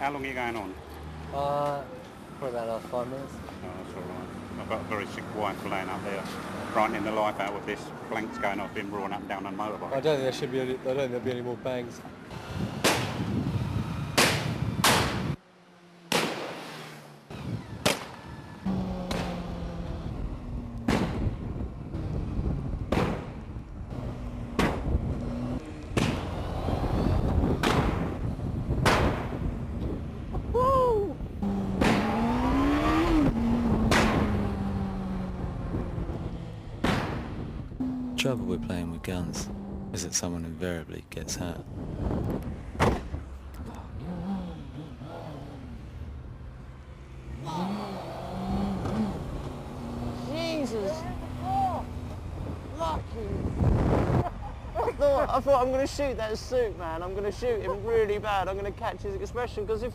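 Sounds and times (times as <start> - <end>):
sharp crack: 12.8 - 13.2, 14.1 - 15.3, 16.1 - 16.7, 17.8 - 18.2, 19.0 - 19.4, 20.8 - 21.4, 22.9 - 23.5, 24.5 - 24.9, 25.8 - 26.3, 27.6 - 28.2, 28.8 - 29.4, 31.7 - 32.3, 33.8 - 34.5, 36.8 - 37.4.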